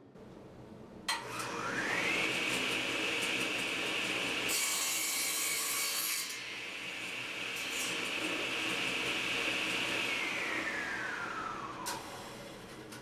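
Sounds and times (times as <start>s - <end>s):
saw blade cutting wood: 1.1s - 10.1s
table saw motor whine: 1.1s - 12.7s.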